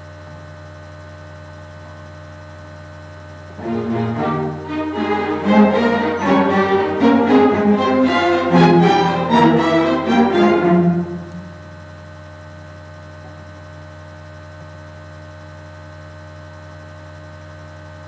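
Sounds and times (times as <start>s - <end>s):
steady low hum: 0.0s - 18.0s
string orchestra bowing: 3.5s - 11.8s.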